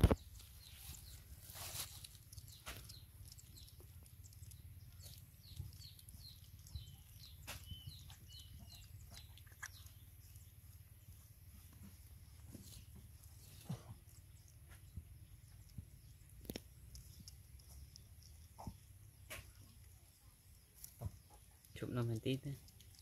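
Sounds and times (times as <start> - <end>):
puppies eating from bowl: 2.2 - 11.4.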